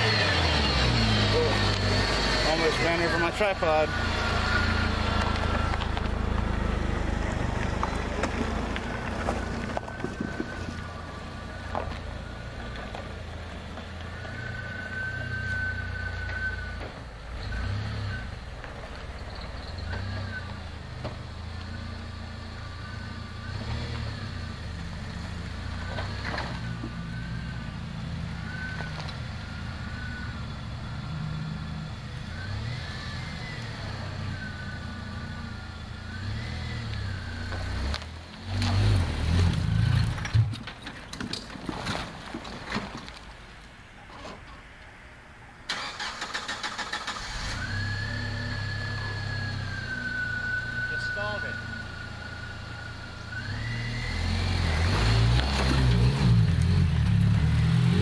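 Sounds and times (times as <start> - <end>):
car engine running: 0.0 - 14.2.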